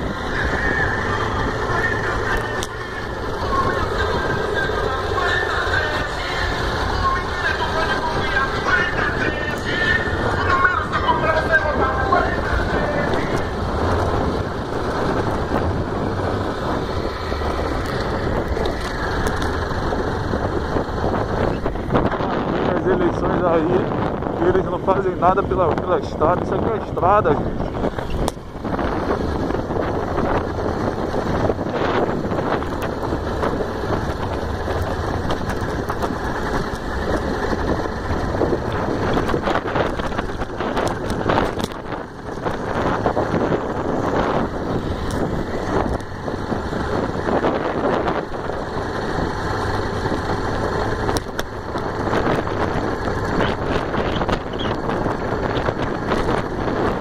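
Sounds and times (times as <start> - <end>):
motorcycle engine running: 0.0 - 57.0
tyre and road noise: 0.0 - 57.0
wind noise on microphone: 0.0 - 57.0.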